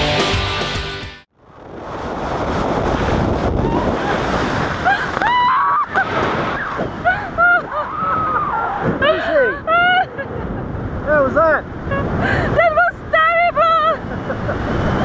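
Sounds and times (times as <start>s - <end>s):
wind buffeting microphone: 1.4s - 15.0s
woman shrieking: 4.8s - 6.0s, 6.6s - 10.0s.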